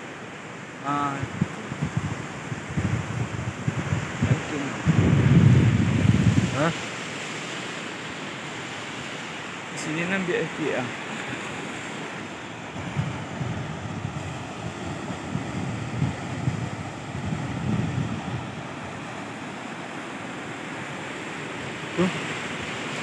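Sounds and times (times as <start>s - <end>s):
ocean surf on sandy beach: 0.0s - 23.0s
wind gusting on microphone: 0.8s - 23.0s.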